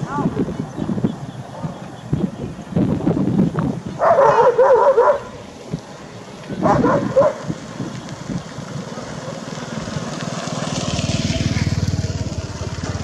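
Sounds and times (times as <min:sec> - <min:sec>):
dog yelping: 0:04.0 - 0:05.4, 0:06.6 - 0:07.5
motorbike engine: 0:04.0 - 0:13.0.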